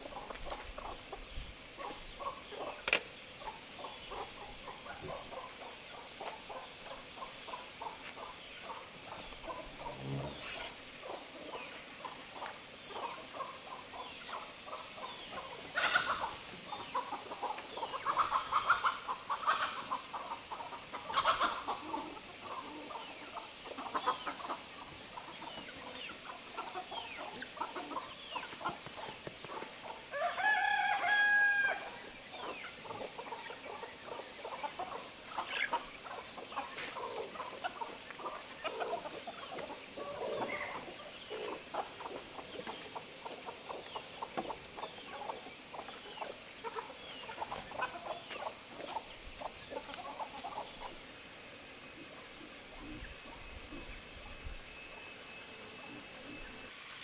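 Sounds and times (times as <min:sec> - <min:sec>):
chickens clucking: 0:00.0 - 0:57.0
rooster crowing: 0:30.1 - 0:31.9.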